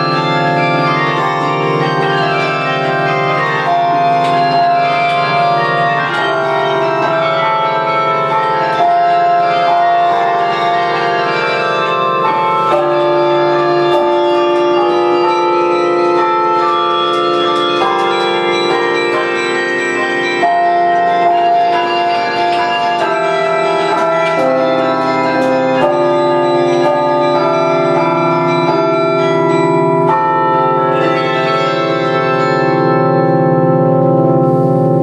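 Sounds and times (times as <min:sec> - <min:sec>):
wooden keys clicking: 0:00.0 - 0:32.6
carillon bells ringing: 0:00.0 - 0:35.0.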